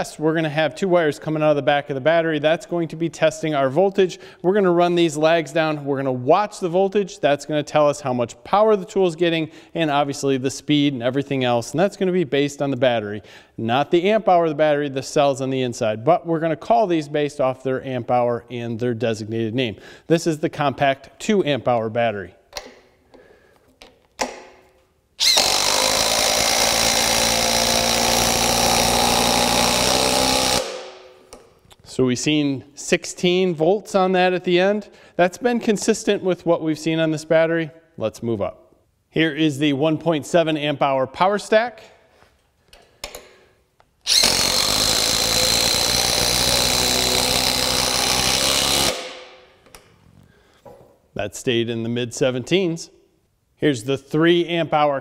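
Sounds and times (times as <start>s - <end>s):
impact driver hammering screw into wood: 25.2s - 31.5s, 44.1s - 49.4s.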